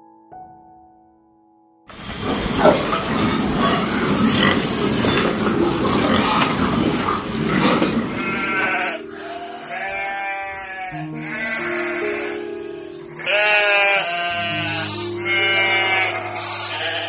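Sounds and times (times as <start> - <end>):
pigs grunting and squealing: 1.9 - 11.6, 13.2 - 17.0
goats bleating: 1.9 - 12.5, 13.2 - 17.0.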